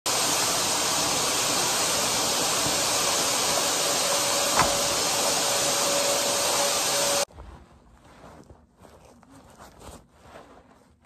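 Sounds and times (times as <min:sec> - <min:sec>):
vacuum cleaner running: 0:00.0 - 0:07.3.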